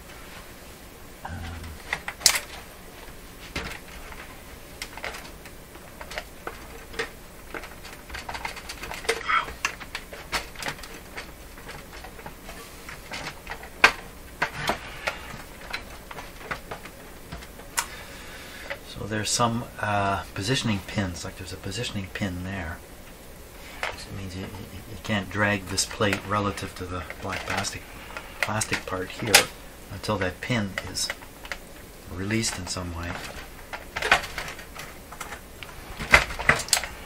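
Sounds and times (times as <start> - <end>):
metal and plastic parts clicking: 3.5 - 17.9, 25.7 - 31.6, 32.2 - 37.0.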